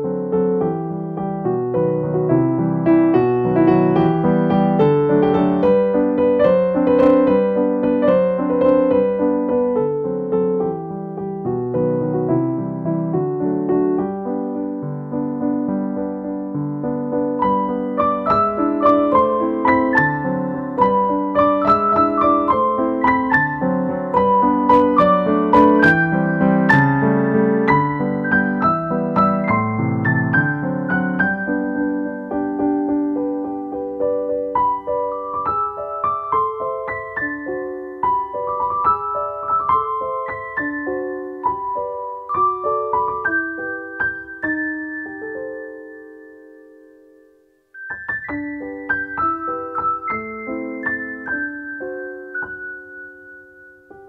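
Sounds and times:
light piano tune: 0.0 - 54.0.

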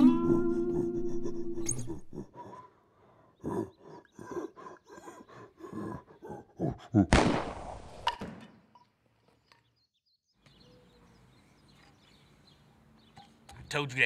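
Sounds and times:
people grunting and groaning: 0.0 - 2.6, 3.4 - 7.2
gunshot: 7.1 - 8.4.

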